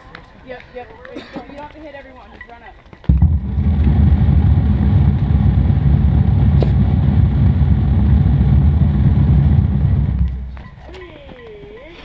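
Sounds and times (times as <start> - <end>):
wind buffeting microphone: 3.1 - 11.4.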